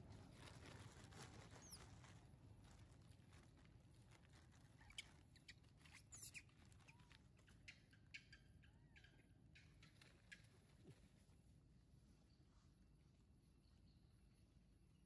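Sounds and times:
faint clicks and rustles: 0.0 - 7.7.

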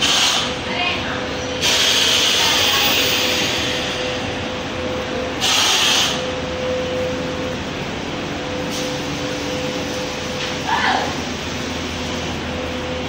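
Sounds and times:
factory machinery humming: 0.0 - 13.0
mid-pitched machine whine: 0.0 - 13.0
loud hiss: 1.6 - 4.2, 5.4 - 6.3.

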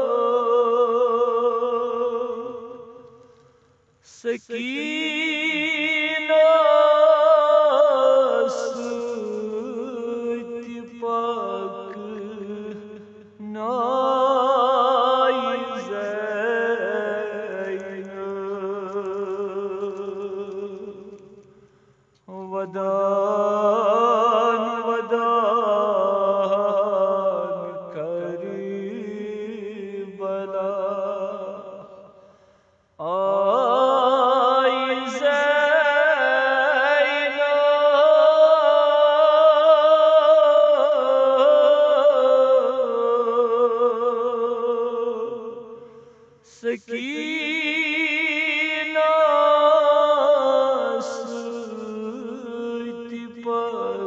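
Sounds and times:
man chanting a lament: 4.1 - 21.0, 22.3 - 31.8, 33.0 - 54.0
short breaths: 21.4 - 22.2, 32.1 - 33.0.

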